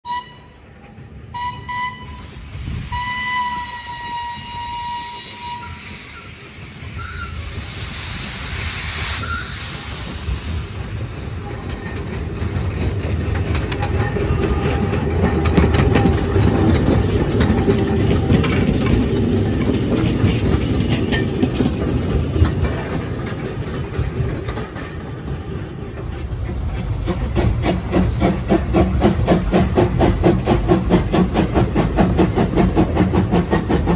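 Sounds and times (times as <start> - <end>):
steam locomotive whistle: 0.0 - 7.7, 9.1 - 9.8
steam exhaust beats: 0.1 - 33.9
train wheels on rails: 0.1 - 33.9.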